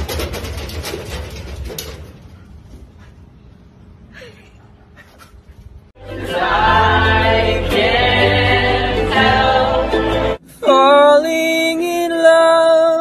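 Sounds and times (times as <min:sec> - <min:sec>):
music with voices singing together: 0:06.0 - 0:11.2.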